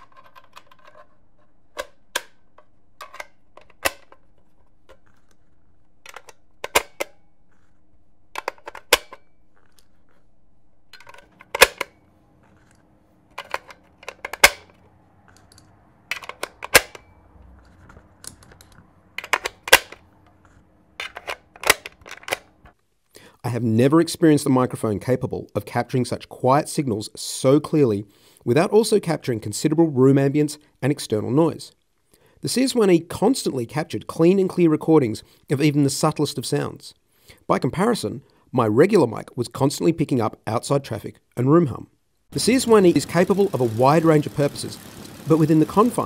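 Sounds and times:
gun mechanism metal clicks: 10.9 - 17.1.

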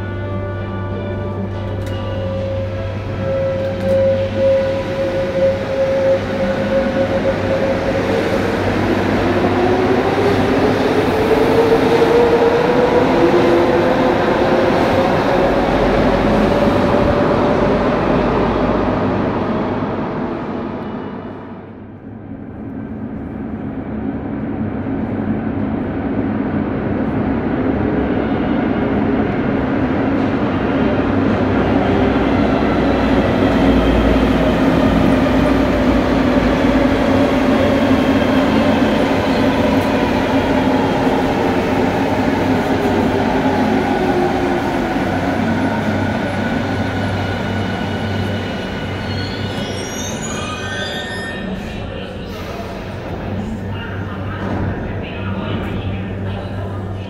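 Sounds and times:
metro train rumble: 0.0 - 57.0
high brake squeaks: 49.0 - 51.8.

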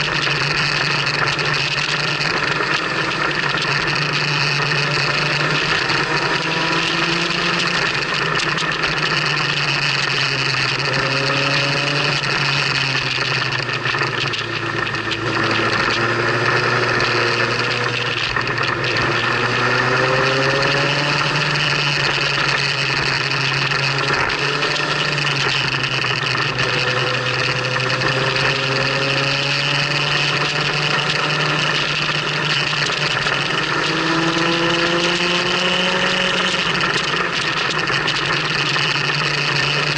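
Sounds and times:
motorcycle engine running: 0.0 - 39.9
road noise: 0.0 - 39.9.

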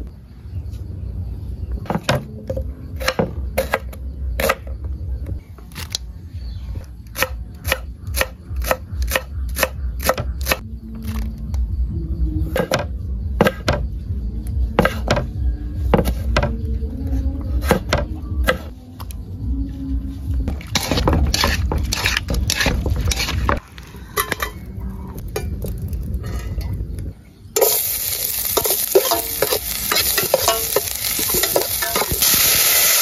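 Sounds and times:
knife chopping on wooden board: 13.4 - 13.8, 14.8 - 15.3.

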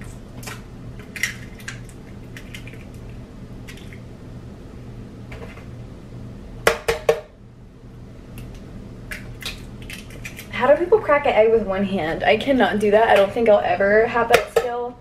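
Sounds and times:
eggs cracking on a jar rim: 9.1 - 10.6.

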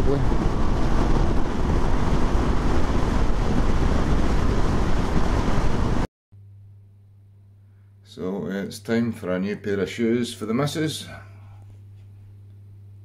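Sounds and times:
wind on microphone: 0.0 - 6.1.

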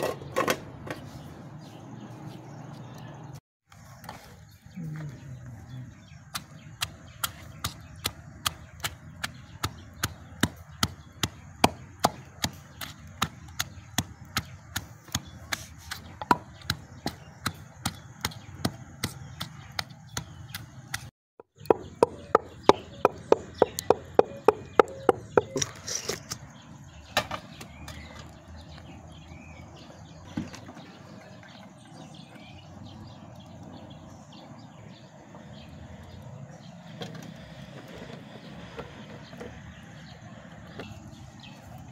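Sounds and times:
wooden pestle pounding in mortar: 6.3 - 25.7.

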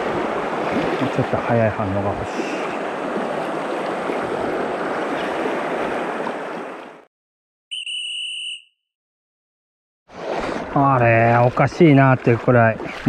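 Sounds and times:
river water rushing: 0.0 - 7.0
high steady tone: 7.7 - 8.8.

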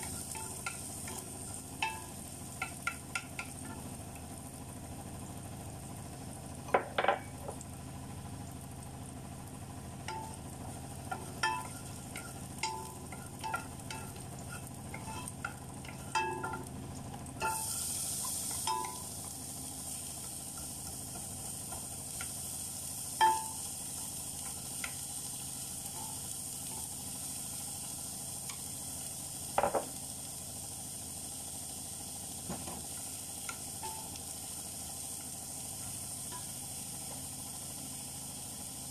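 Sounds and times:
food sizzling in hot pan: 0.0 - 38.9
sharp knocks on pan: 6.7 - 7.3, 29.6 - 30.0
wooden spatula scraping frying pan: 14.0 - 16.2.

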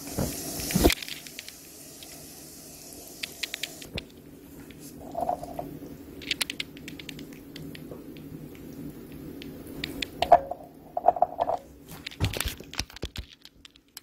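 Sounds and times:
low steady hum: 3.8 - 12.8.

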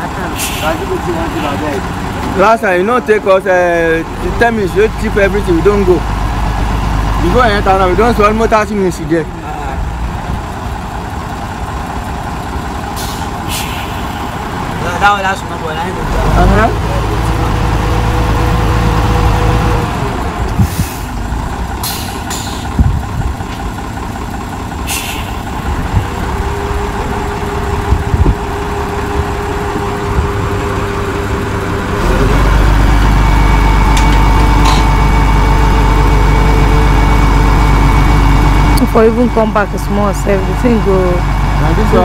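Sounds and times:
truck engine rumbling: 0.0 - 42.0
air hissing: 13.0 - 14.4, 24.8 - 25.5.

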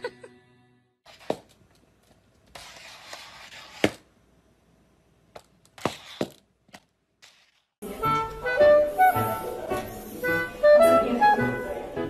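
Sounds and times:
music with wind instruments: 7.8 - 12.0.

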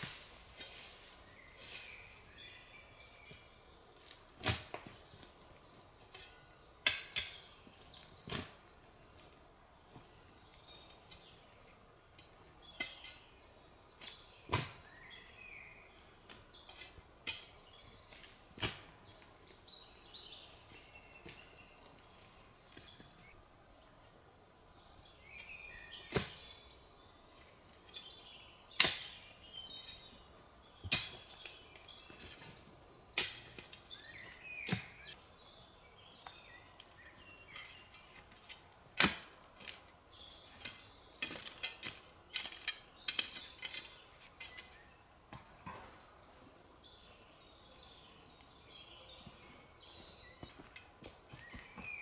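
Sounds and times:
small birds chirping: 0.6 - 38.6, 39.6 - 52.0
sharp knocks and cracks: 28.8 - 29.2, 30.8 - 31.2, 33.2 - 33.8, 38.4 - 39.8.

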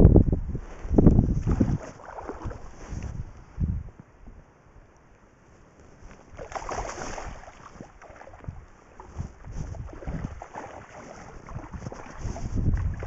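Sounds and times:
wind buffeting microphone: 0.0 - 4.4, 6.1 - 13.0
river water splashing: 1.4 - 2.8, 6.2 - 13.0.

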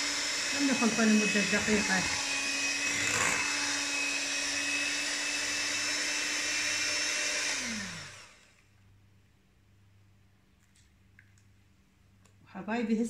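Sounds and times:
electric hand mixer whining: 0.0 - 8.6.

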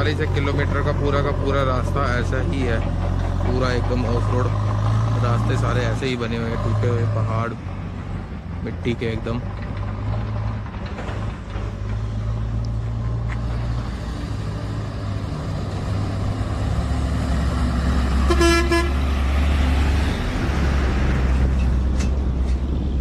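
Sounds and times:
truck engine running: 0.0 - 23.0
horn toot: 18.2 - 19.1.

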